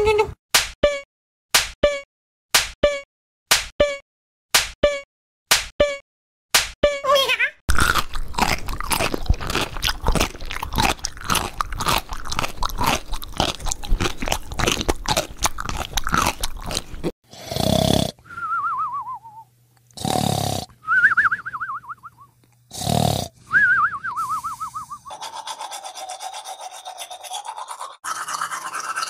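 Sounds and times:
popcorn being chewed: 0:07.7 - 0:17.1.

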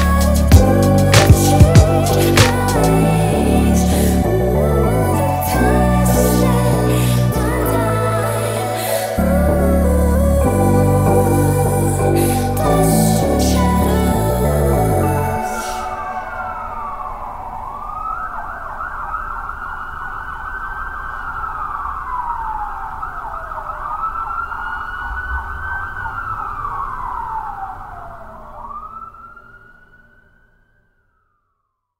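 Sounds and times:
low rumble: 0:00.0 - 0:18.0
emergency siren wailing: 0:00.0 - 0:31.7.

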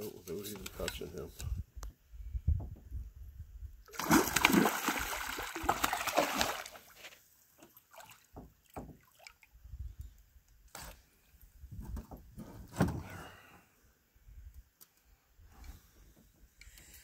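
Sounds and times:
fish thrashing and splashing: 0:03.9 - 0:07.1.

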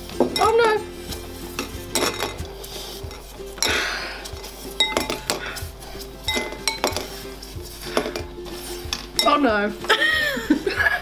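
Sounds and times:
candy balls clinking on ceramic bowl: 0:00.2 - 0:00.9, 0:01.6 - 0:07.2, 0:07.8 - 0:09.5
candy balls dropping into glass: 0:01.6 - 0:02.5, 0:04.8 - 0:05.4.

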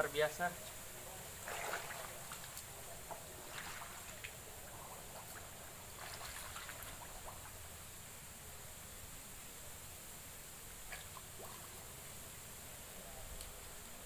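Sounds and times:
person wading through shallow water: 0:01.3 - 0:07.7.

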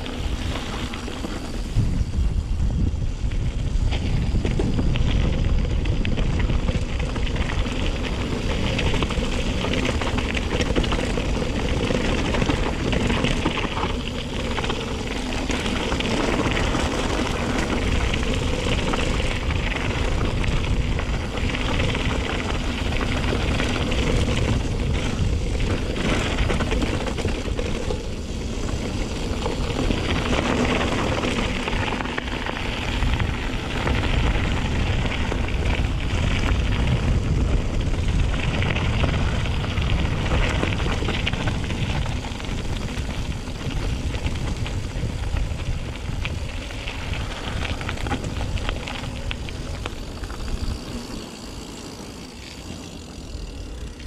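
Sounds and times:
bike tyre rumble: 0:00.0 - 0:54.0.

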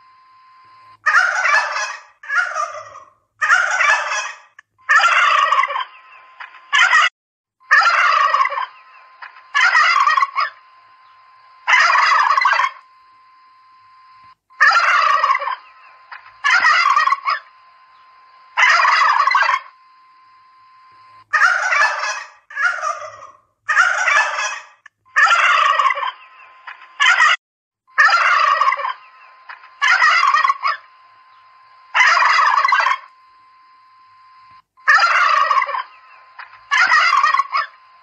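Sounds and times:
faint steady hum: 0:00.0 - 0:06.9, 0:07.6 - 0:27.1, 0:27.9 - 0:38.0
turkeys gobbling: 0:01.0 - 0:07.1, 0:07.7 - 0:12.8, 0:14.6 - 0:18.0, 0:18.6 - 0:19.8, 0:21.3 - 0:27.4, 0:28.0 - 0:30.9, 0:31.9 - 0:33.1, 0:34.8 - 0:37.8.

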